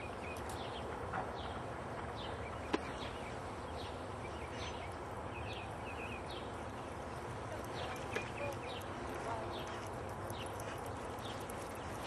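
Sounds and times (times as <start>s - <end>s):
outdoor background noise: 0.0s - 12.0s
birds chirping: 2.2s - 12.0s.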